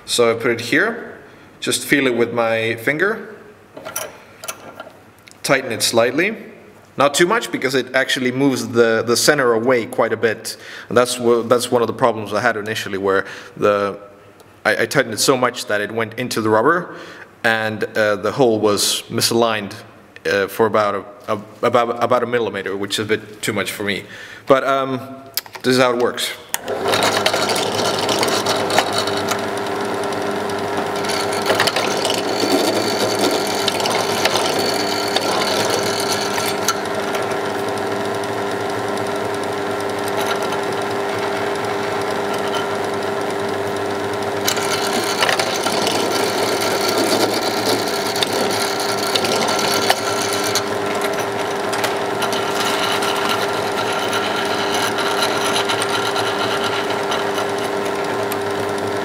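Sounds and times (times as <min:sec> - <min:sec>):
clicks and rattles in vise: 0:26.6 - 0:29.4, 0:31.0 - 0:37.3, 0:44.4 - 0:58.4
motor humming: 0:26.6 - 0:59.0.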